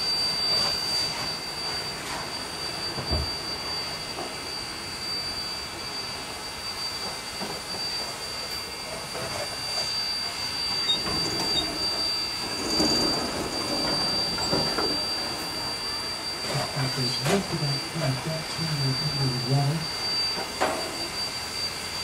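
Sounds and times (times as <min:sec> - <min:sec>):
train rolling on track: 0:00.0 - 0:19.2
steady high-pitched tone: 0:00.0 - 0:22.0
train knocks: 0:12.6 - 0:15.6.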